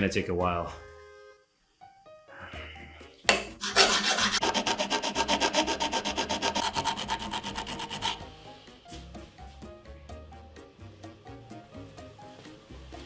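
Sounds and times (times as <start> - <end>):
metal file rasping on axe head: 3.6 - 8.3.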